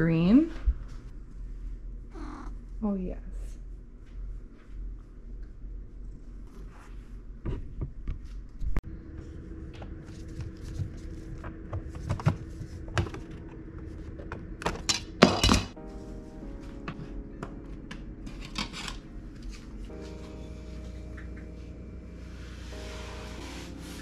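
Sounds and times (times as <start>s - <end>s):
steady motor hum: 8.8s - 15.4s.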